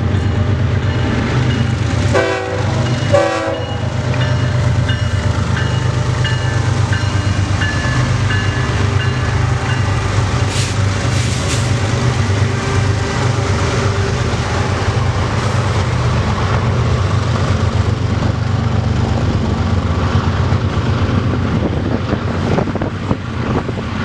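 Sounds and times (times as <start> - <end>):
rumble of rolling train: 0.0 - 24.0
locomotive bell ringing: 0.8 - 1.9, 2.6 - 10.1
train horn blasts: 2.1 - 3.9.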